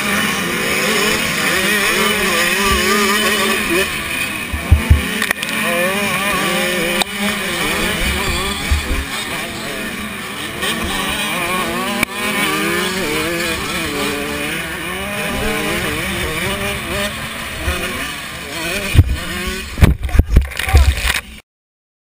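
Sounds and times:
motorbike engine revving: 0.0 - 21.3
heavy thump: 4.5 - 5.1
wind rush on microphone: 18.8 - 21.1.

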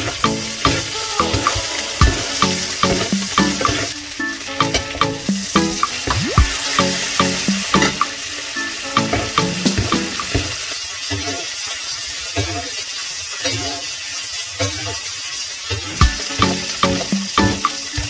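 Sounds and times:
background music: 0.0 - 10.5, 16.0 - 18.0
steak sizzling in butter: 0.0 - 18.0.

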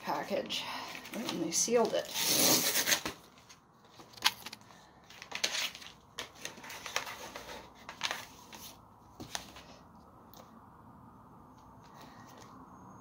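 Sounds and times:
paper and plastic rustling: 0.8 - 9.8.

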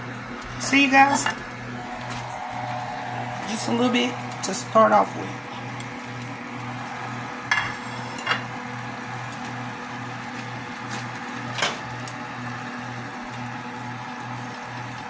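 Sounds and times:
pulsing hum: 1.7 - 10.1
food sauteing in a pot: 1.8 - 15.0.

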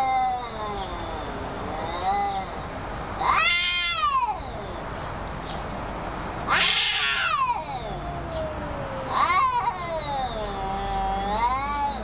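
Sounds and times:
cat yowling: 0.0 - 2.6, 3.2 - 4.8, 6.5 - 12.0.

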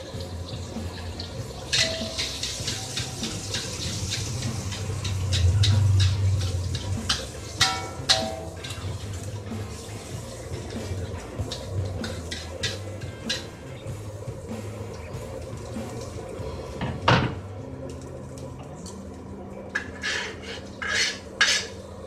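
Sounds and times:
egg sizzling in hot oil: 0.0 - 17.1
metal spatula scraping a wok: 1.7 - 9.9, 10.7 - 13.6, 19.8 - 21.8.

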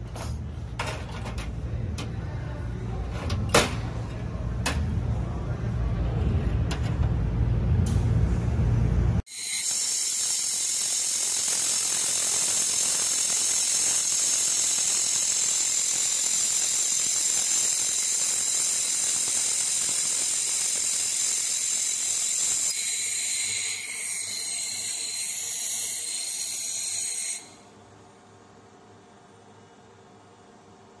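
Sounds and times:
laser welding gun hissing: 9.3 - 27.6.

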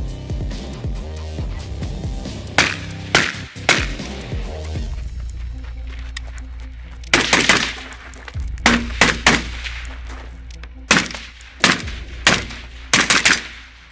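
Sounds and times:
suppressed rifle shots: 2.6 - 4.2, 7.1 - 8.0, 8.6 - 10.1, 10.9 - 13.9.

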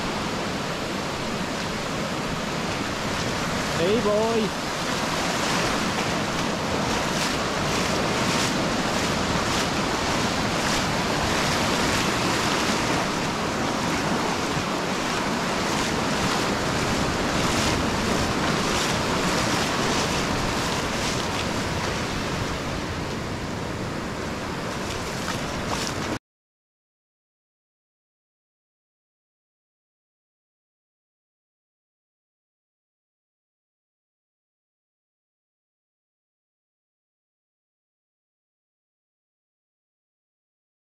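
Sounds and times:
waves on a sandy beach: 0.0 - 26.2
wind buffeting microphone: 4.6 - 26.2.

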